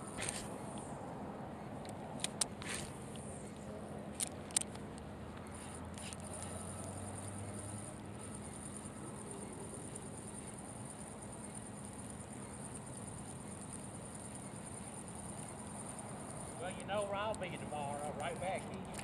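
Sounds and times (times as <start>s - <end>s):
fishing reel whirring: 5.6s - 19.0s.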